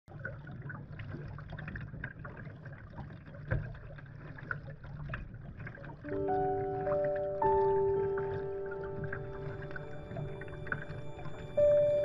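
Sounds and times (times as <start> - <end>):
water dripping and splashing: 0.1 - 12.0.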